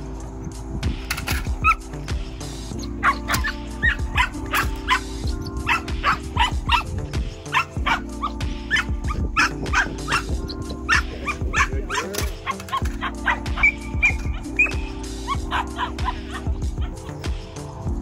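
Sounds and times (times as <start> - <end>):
puppy barking in high-pitched yaps: 2.8 - 17.0.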